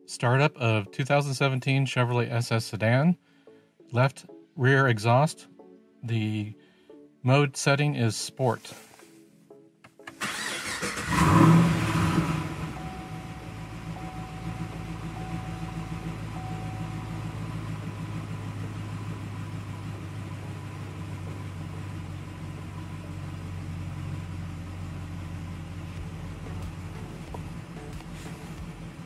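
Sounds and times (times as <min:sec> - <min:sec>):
engine starting and idling: 0:10.1 - 0:29.0.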